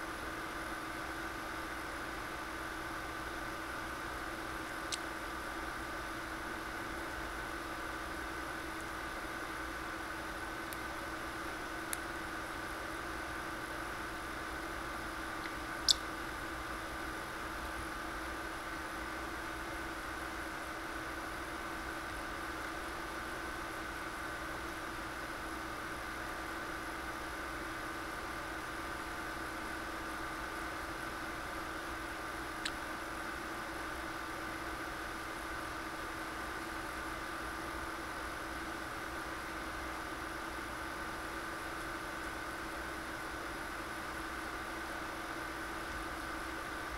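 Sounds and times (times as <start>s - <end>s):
steady electrical hum: 0.0s - 46.9s
parrotlet chirps: 15.8s - 16.2s.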